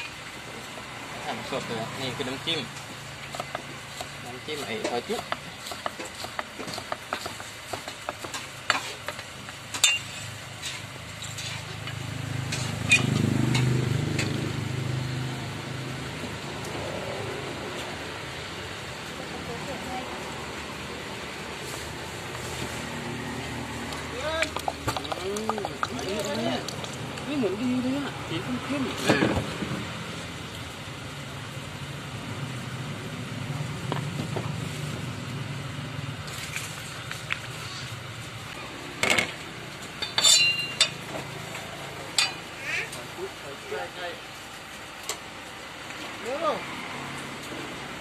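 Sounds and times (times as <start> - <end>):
passing vehicle engine rumble: 11.5 - 39.9
light clinks: 40.0 - 41.0.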